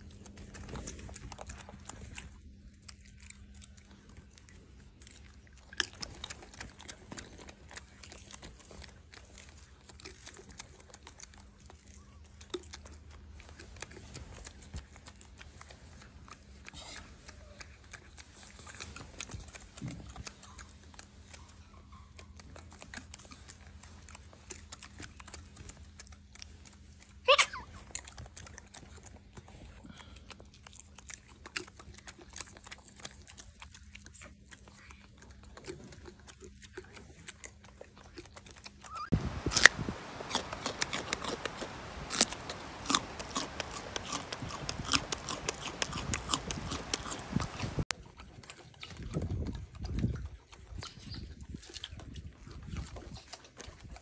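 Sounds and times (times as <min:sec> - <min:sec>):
faint steady hum: 0:00.0 - 0:47.9
monkey chewing and crunching food: 0:00.0 - 0:54.0.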